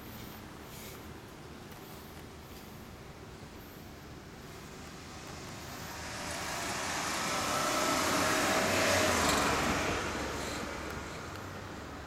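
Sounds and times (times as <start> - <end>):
road vehicle passing by: 4.4 - 12.0.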